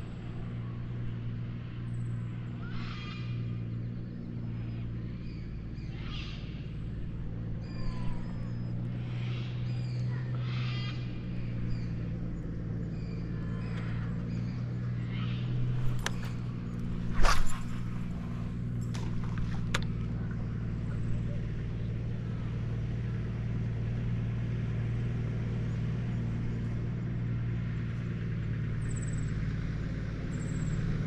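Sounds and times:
boat motor humming: 0.0s - 31.0s
high wavering animal calls: 2.2s - 22.4s.

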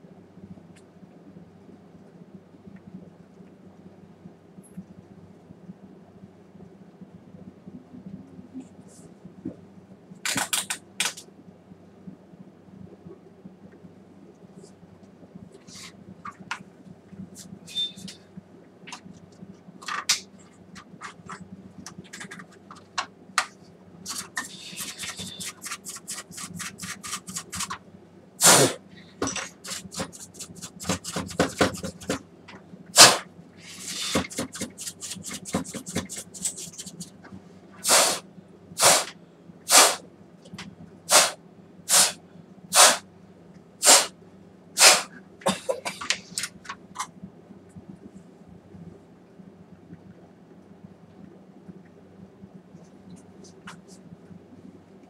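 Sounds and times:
paintbrush scrubbing dust: 24.1s - 27.8s, 29.6s - 32.2s, 33.0s - 37.1s, 43.8s - 44.1s
puffs of air blown: 28.4s - 29.0s, 33.0s - 35.4s, 37.8s - 39.1s, 39.7s - 40.0s, 41.1s - 43.0s, 43.8s - 44.1s, 44.8s - 45.2s.

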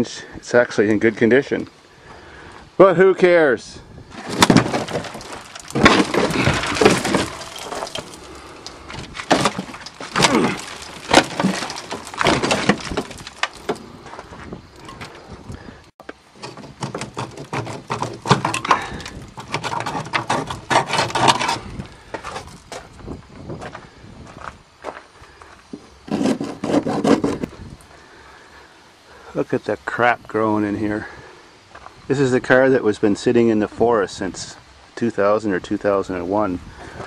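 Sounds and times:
rusty metal cracking and clanking: 4.1s - 15.2s, 16.3s - 22.7s
metal creaking as it bends: 4.1s - 15.6s.

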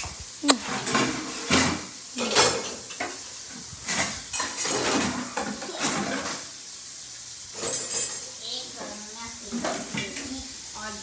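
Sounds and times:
dishes and utensils clattering: 0.7s - 3.2s, 3.8s - 6.5s, 7.5s - 10.2s.

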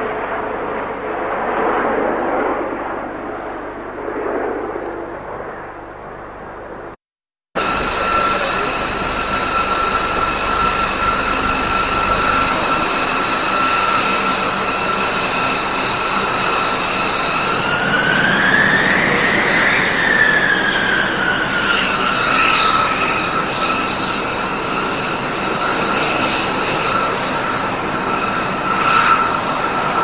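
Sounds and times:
jet engines whining: 7.6s - 30.0s.

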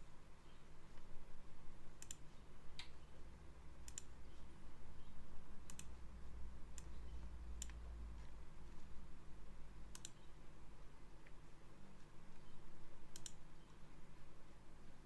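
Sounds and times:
faint low hum: 0.0s - 15.0s
computer mouse clicking: 2.0s - 3.0s, 3.8s - 4.2s, 5.6s - 6.0s, 6.7s - 8.4s, 9.9s - 10.3s, 13.1s - 13.8s.

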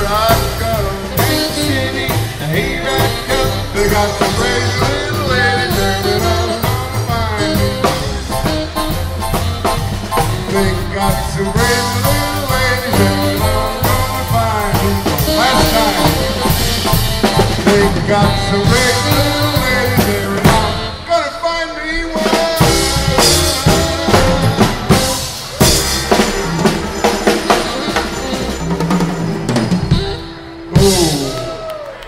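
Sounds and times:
man singing into a microphone: 0.0s - 8.2s, 10.2s - 16.8s, 17.6s - 24.3s
drum kit: 0.0s - 21.2s, 21.9s - 31.9s
trumpets: 0.0s - 32.0s.

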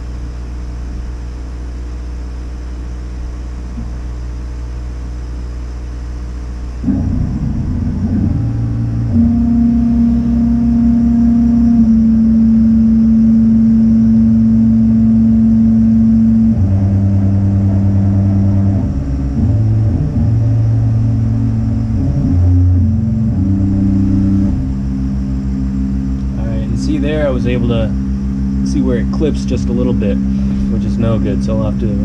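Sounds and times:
low machine hum: 0.0s - 32.0s
stepper motors whining: 6.8s - 32.0s.

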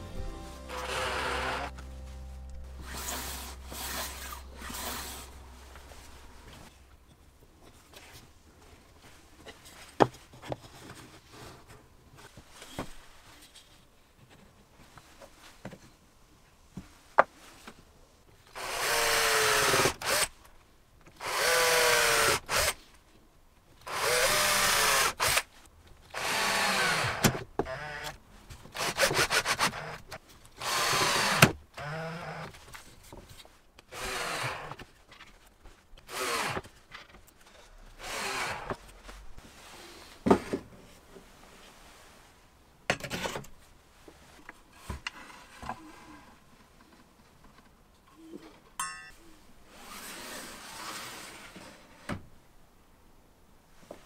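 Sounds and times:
drill driving screws into wood: 0.7s - 1.7s, 2.8s - 5.2s, 18.5s - 20.4s, 21.2s - 22.8s, 23.8s - 25.5s, 26.1s - 30.0s, 30.6s - 32.5s, 33.9s - 34.9s, 36.0s - 36.8s, 37.9s - 38.9s.

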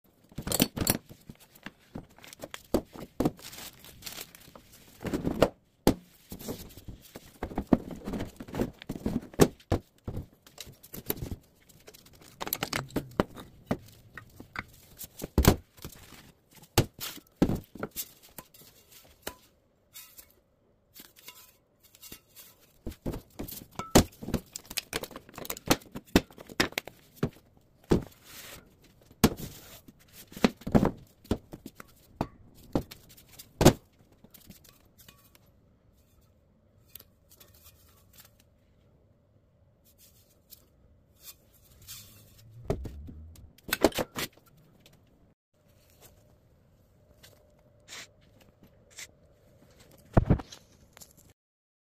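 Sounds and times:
wooden knocks and thunks: 42.6s - 43.4s.

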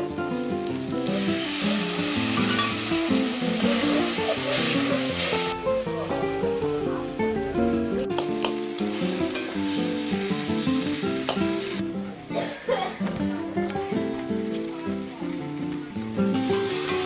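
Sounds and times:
vegetables sizzling in oil: 0.0s - 12.4s, 13.6s - 17.0s
metal spatula scraping wok: 1.1s - 5.6s, 8.4s - 11.8s, 16.6s - 17.0s
background music: 1.1s - 12.9s.

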